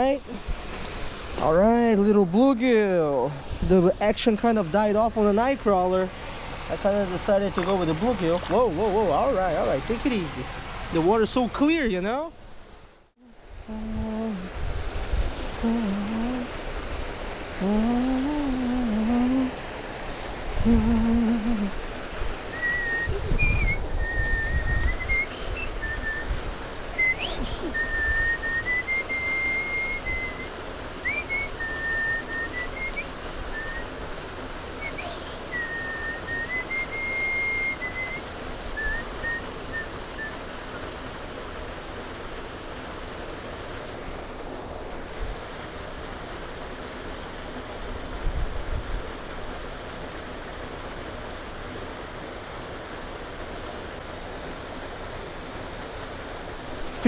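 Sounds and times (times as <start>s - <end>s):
flowing creek water: 0.0s - 57.0s
man humming: 13.2s - 14.6s, 15.5s - 16.6s, 17.6s - 19.6s, 20.6s - 21.8s, 27.0s - 27.9s, 34.9s - 35.7s
man whistling a melody: 22.5s - 26.4s, 27.0s - 33.9s, 34.8s - 38.2s, 38.8s - 40.4s.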